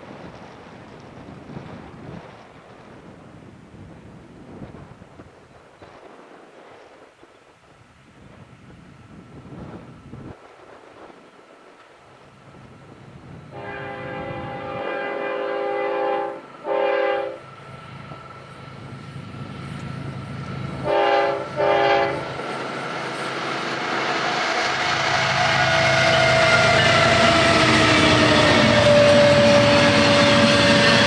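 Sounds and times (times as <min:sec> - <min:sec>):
train rumble: 0:00.0 - 0:31.0
wheels clacking on rail: 0:09.5 - 0:31.0
locomotive air horn blasts: 0:13.5 - 0:17.4, 0:20.8 - 0:22.3, 0:25.2 - 0:31.0.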